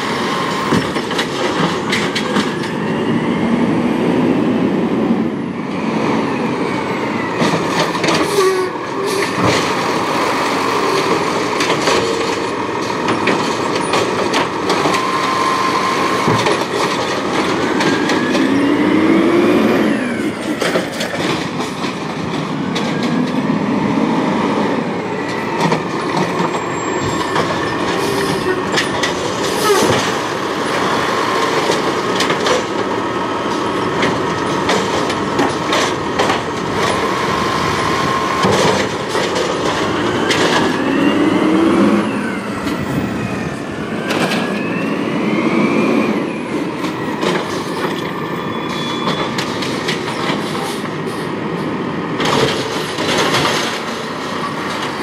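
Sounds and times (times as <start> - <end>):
garbage truck engine: 0.0 - 55.0
knocks and clanks of cart: 0.6 - 2.8, 7.4 - 15.4, 16.1 - 18.6, 20.3 - 23.5, 25.4 - 40.9, 46.8 - 55.0.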